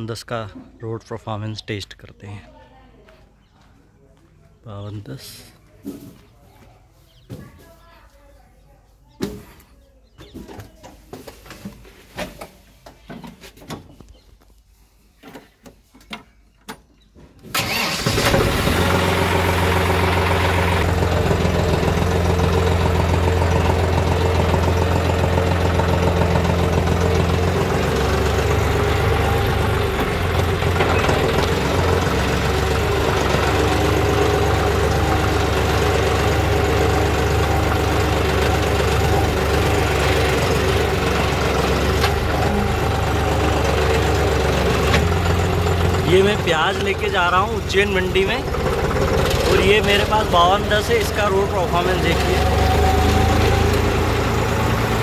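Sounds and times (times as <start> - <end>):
diesel tractor engine running: 17.5 - 55.0.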